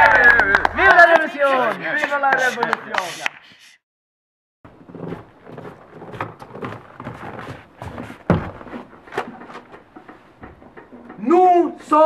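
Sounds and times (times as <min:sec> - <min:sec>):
irregular knocks and thumps: 0:04.7 - 0:11.3.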